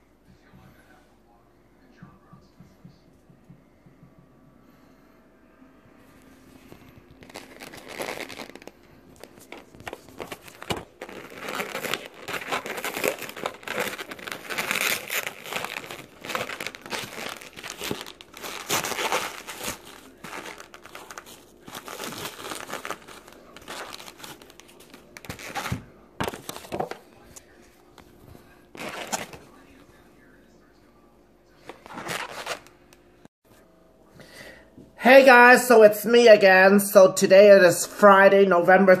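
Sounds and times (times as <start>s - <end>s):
plastic packaging crinkling: 6.7s - 27.0s, 28.7s - 29.6s, 31.7s - 32.8s.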